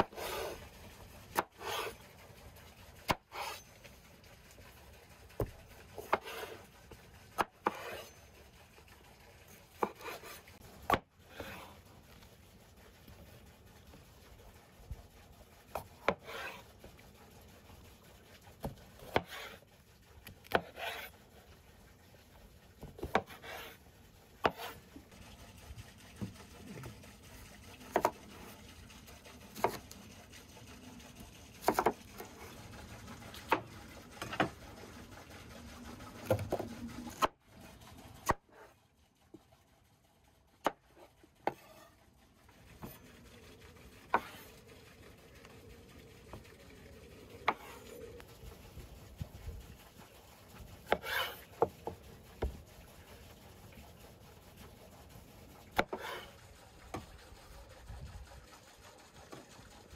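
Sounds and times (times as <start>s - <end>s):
knife cutting through vegetables: 0.0s - 0.6s, 1.3s - 2.1s, 3.0s - 3.7s, 5.4s - 6.7s, 7.3s - 8.2s, 9.7s - 11.9s, 15.8s - 16.8s, 18.6s - 21.2s, 22.8s - 23.8s, 24.4s - 24.9s, 27.8s - 28.6s, 29.4s - 30.0s, 31.5s - 32.5s, 40.6s - 42.0s, 50.8s - 51.7s, 55.7s - 56.4s.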